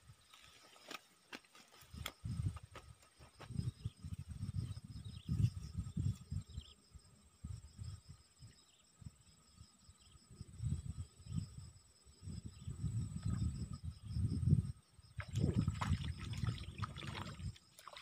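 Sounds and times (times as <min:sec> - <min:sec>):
insects trilling: 0:00.0 - 0:18.0
wind gusts on microphone: 0:01.9 - 0:06.8, 0:07.4 - 0:09.3, 0:10.3 - 0:17.6.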